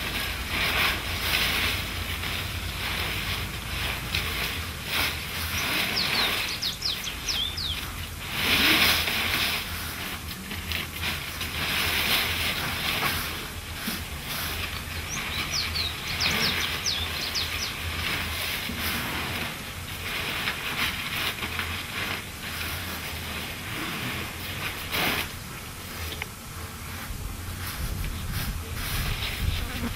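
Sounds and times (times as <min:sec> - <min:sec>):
dried leaves rustling and crackling: 0:00.0 - 0:29.9
high bird chirps: 0:05.5 - 0:08.0, 0:14.9 - 0:18.0.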